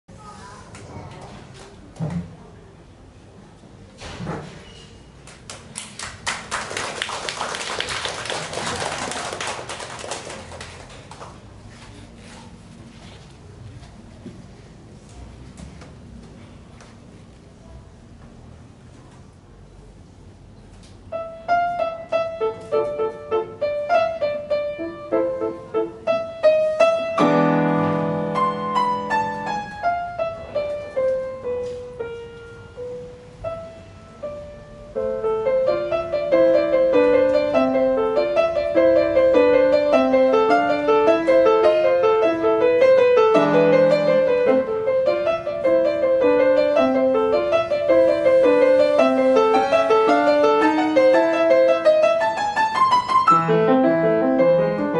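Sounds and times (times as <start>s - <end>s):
solo grand piano piece: 21.0s - 54.9s.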